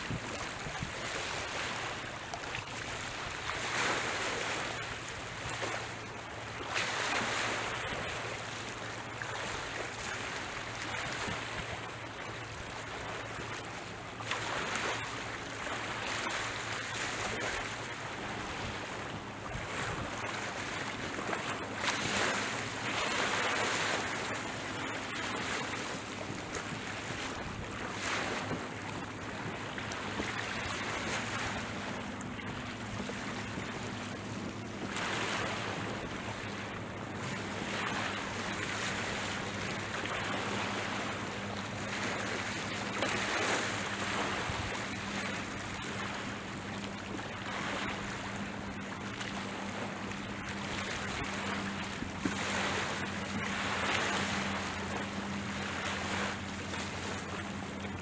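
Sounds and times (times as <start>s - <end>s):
wind on microphone: 0.0s - 1.6s
sea waves on rocky shore: 0.0s - 58.0s.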